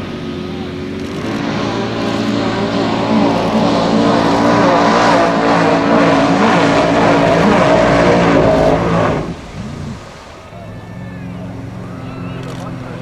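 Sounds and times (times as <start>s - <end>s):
car engine revving high: 0.0s - 10.2s
water spray hissing: 0.8s - 10.5s.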